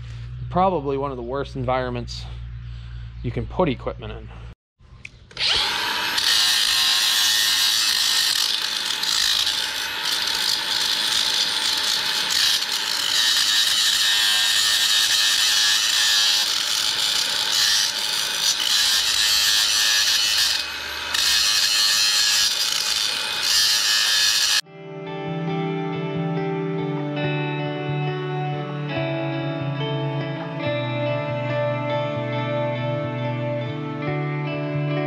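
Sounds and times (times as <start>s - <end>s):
angle grinder grinding steel: 5.3s - 24.7s.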